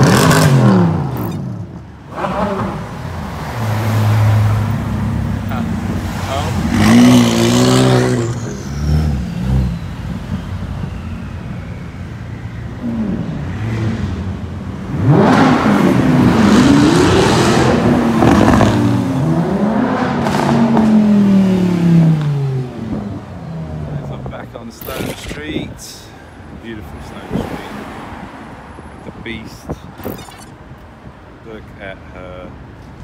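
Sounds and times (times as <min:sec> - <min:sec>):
car engines revving past: 0:00.0 - 0:11.8, 0:12.6 - 0:25.4.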